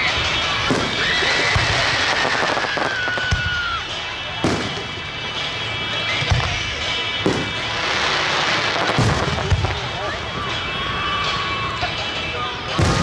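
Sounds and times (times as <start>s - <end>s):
crackling hiss: 0.0s - 11.7s.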